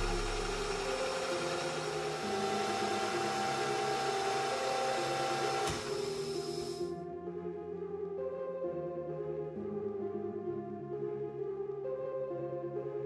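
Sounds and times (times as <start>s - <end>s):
milling machine motor running: 0.0s - 6.9s.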